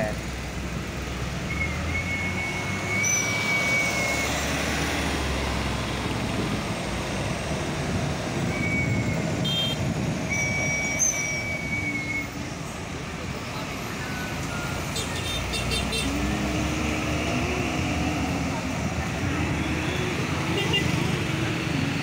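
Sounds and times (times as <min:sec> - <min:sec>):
diesel truck engines: 0:00.0 - 0:22.0
tyre and road noise: 0:00.0 - 0:22.0
thin high whistle: 0:01.5 - 0:04.3, 0:10.3 - 0:12.4.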